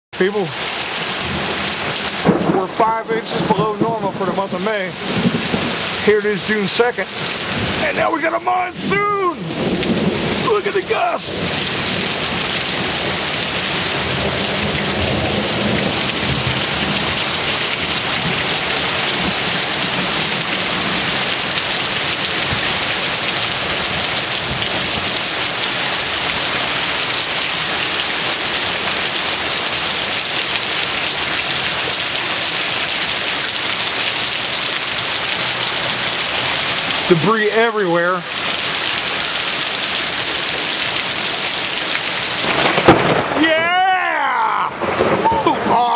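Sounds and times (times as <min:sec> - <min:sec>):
heavy rain pouring: 0:00.2 - 0:45.9
thunder rumbling: 0:01.1 - 0:29.0, 0:39.5 - 0:45.9.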